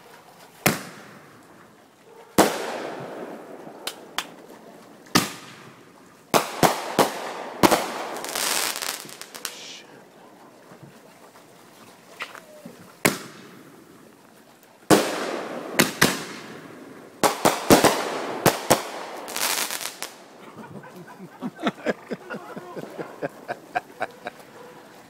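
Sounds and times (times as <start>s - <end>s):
fireworks bangs: 2.4s - 4.3s, 6.3s - 9.8s, 14.9s - 20.4s
fireworks crackling and popping: 6.3s - 9.8s, 14.9s - 20.4s.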